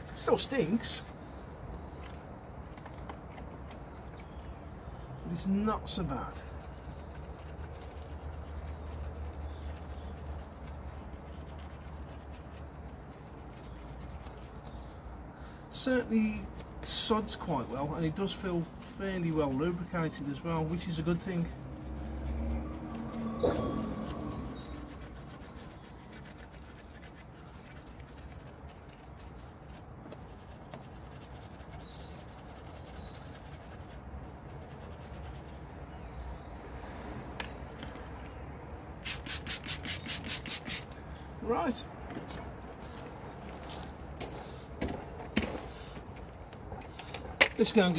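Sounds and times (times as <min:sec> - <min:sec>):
bird chirping: 0:00.0 - 0:05.4, 0:06.6 - 0:10.7, 0:19.5 - 0:29.5, 0:30.3 - 0:47.9
brush scrubbing rubber tyre: 0:04.2 - 0:15.1, 0:15.7 - 0:36.2, 0:38.9 - 0:41.7.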